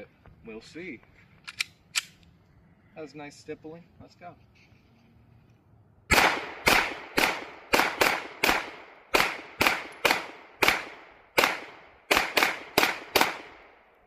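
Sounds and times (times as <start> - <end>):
pistol shots: 6.1 - 13.9.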